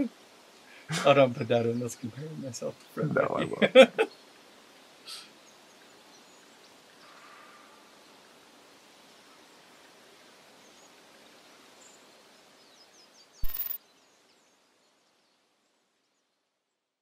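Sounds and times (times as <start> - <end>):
steady outdoor hiss: 0.0 - 17.0
faint high bird chirps: 13.4 - 13.8.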